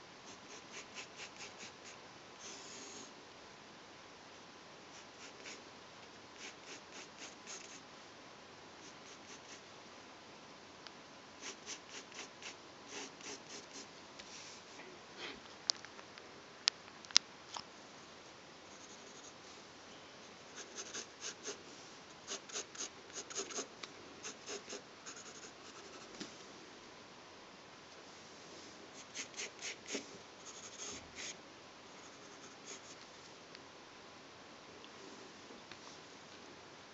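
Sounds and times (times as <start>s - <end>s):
pencil ticking against paper: 0.3s - 2.0s, 6.4s - 7.8s, 11.4s - 13.9s, 20.6s - 21.6s, 22.3s - 26.1s, 29.0s - 31.4s
pencil scratching on paper: 0.3s - 3.0s, 5.0s - 5.6s, 6.4s - 7.8s, 8.8s - 9.6s, 11.4s - 13.9s, 20.5s - 21.6s, 22.3s - 26.1s, 29.0s - 31.4s.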